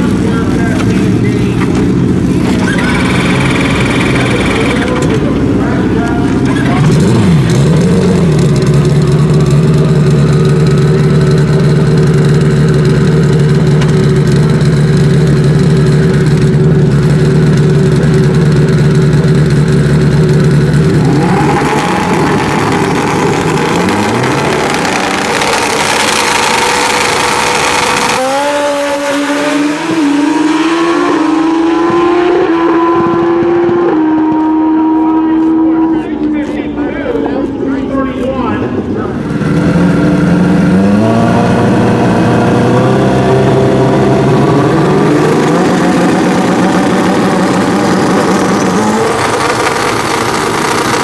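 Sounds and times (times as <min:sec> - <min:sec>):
motorcycle engines revving: 0:00.0 - 0:51.0
motorcycles accelerating: 0:00.0 - 0:51.0.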